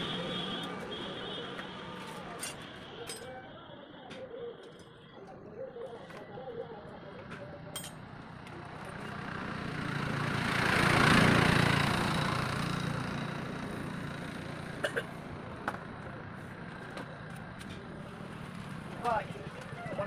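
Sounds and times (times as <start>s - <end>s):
vehicle passing by: 8.8s - 14.7s.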